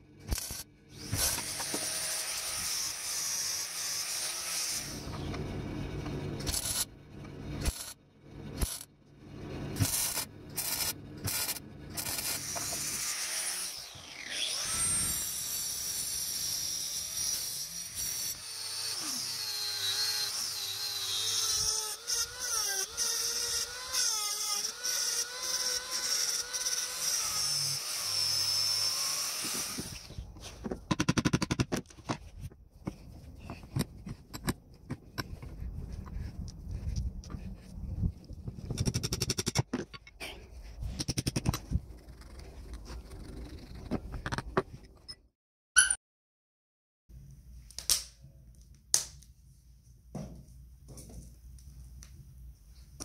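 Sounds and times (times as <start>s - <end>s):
sharp metallic clicks and knocks: 30.7s - 32.2s, 38.5s - 40.2s, 41.0s - 41.7s.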